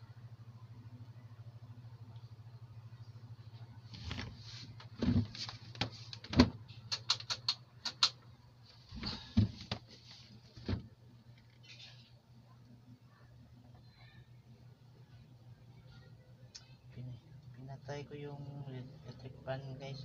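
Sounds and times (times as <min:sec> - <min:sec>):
low electrical hum: 0:00.0 - 0:20.0
sharp ticks: 0:06.9 - 0:08.2.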